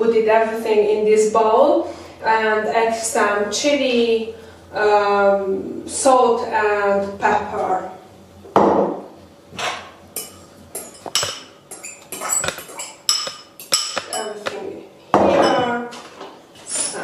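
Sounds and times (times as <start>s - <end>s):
metal spoon clinking on glass: 10.2s - 14.4s.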